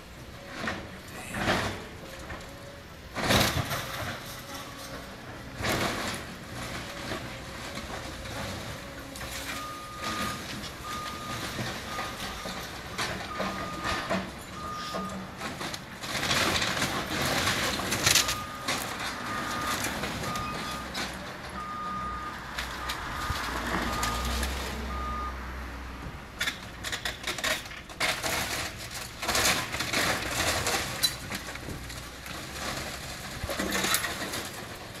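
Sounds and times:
low engine rumble: 0:00.0 - 0:35.0
demolition debris crashing: 0:00.1 - 0:25.3, 0:26.4 - 0:35.0
reversing alarm beeping: 0:09.5 - 0:15.4, 0:18.1 - 0:25.4.

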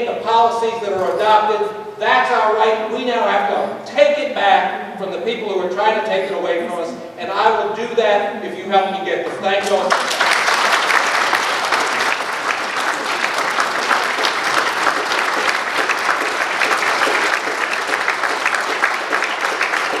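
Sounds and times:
audience clapping and cheering: 0:09.6 - 0:20.0.

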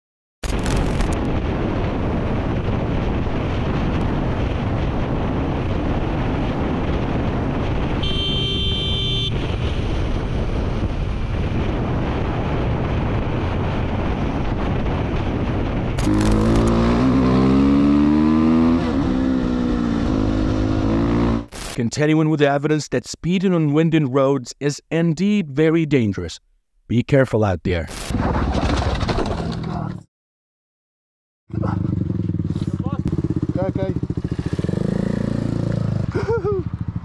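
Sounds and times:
wind and road noise: 0:00.4 - 0:22.2, 0:27.9 - 0:30.0, 0:31.5 - 0:37.0
dirt bike engine revving: 0:16.0 - 0:21.5, 0:31.5 - 0:36.1.

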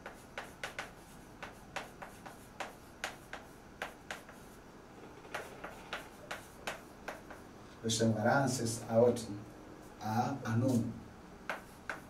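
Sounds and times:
chalk tapping on blackboard: 0:00.0 - 0:04.6, 0:05.2 - 0:07.5, 0:10.6 - 0:12.0.

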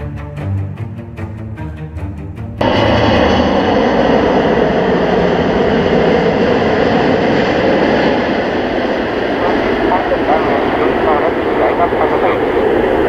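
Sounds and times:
music: 0:00.0 - 0:02.6
jet engine roar with whine: 0:02.6 - 0:13.0.

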